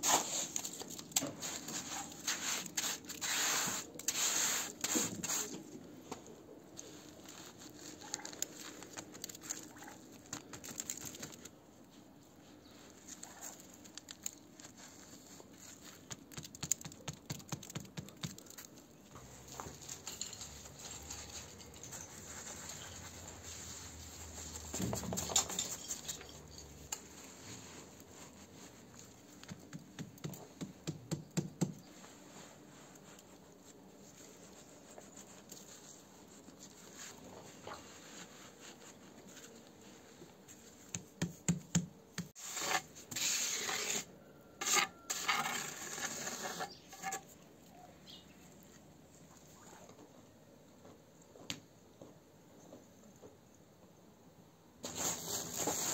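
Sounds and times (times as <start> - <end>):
trowel scraping mortar: 1.4 - 5.6, 42.3 - 47.3.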